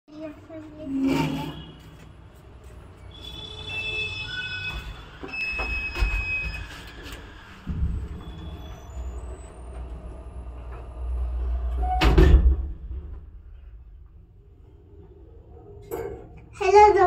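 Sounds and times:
high metallic squealing: 0:03.0 - 0:09.8
elevator doors sliding: 0:03.7 - 0:13.5
low rumble of lift: 0:05.2 - 0:16.5.

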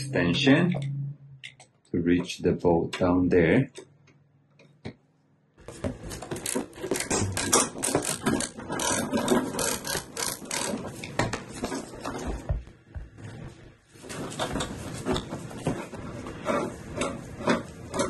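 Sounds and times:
tool rattling in hand: 0:06.1 - 0:12.3.

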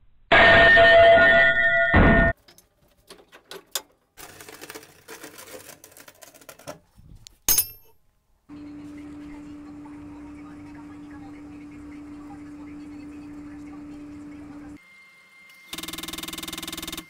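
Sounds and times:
metal clank ringing: 0:07.5 - 0:08.0.

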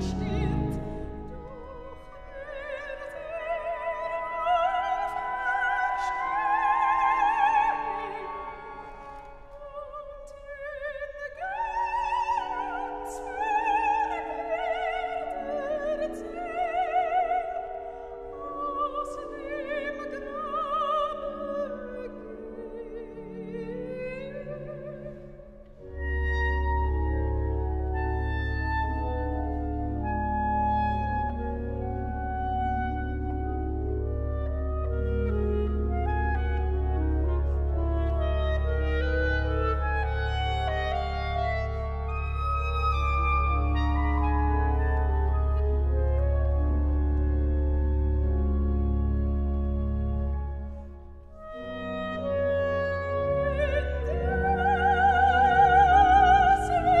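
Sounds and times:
pipe organ pedal notes: 0:00.0 - 0:02.6, 0:17.6 - 0:57.0
soprano singing with vibrato: 0:00.0 - 0:26.4, 0:51.6 - 0:57.0
soft held accompaniment: 0:00.0 - 0:57.0.

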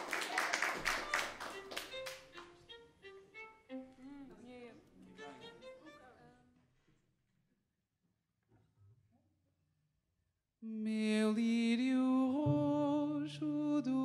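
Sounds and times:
applause: 0:00.0 - 0:02.3.

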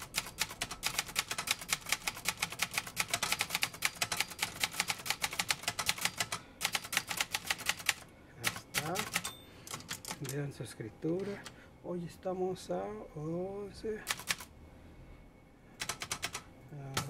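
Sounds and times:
manual typewriter typing: 0:00.0 - 0:10.5, 0:14.0 - 0:14.5, 0:15.8 - 0:17.0.

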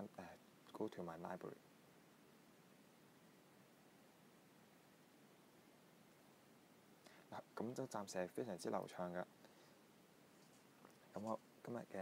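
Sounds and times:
light hiss: 0:00.0 - 0:12.0.

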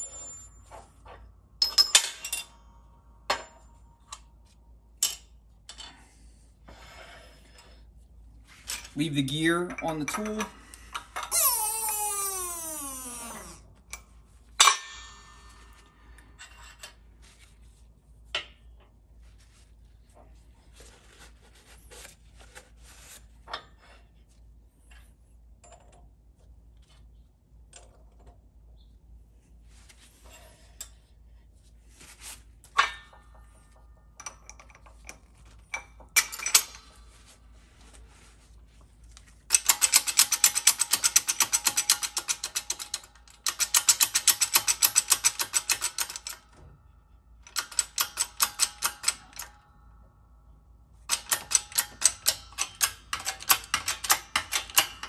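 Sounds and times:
metal ringing: 0:14.6 - 0:15.9.

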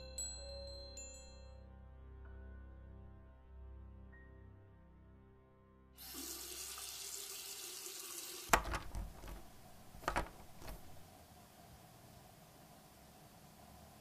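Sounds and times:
faucet water running into sink: 0:06.0 - 0:10.0
dishes knocking and clinking: 0:08.5 - 0:11.0.

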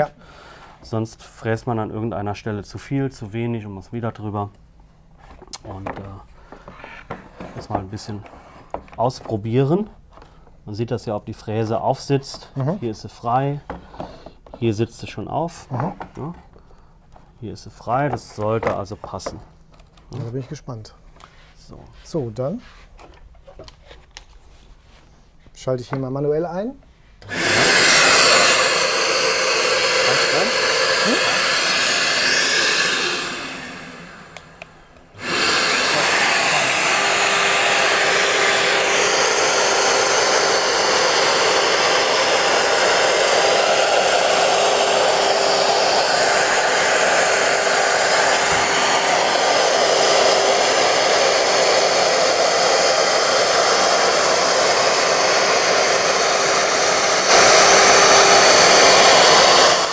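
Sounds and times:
dust extraction vacuum: 0:27.2 - 0:59.9
router running: 0:27.2 - 0:59.9.

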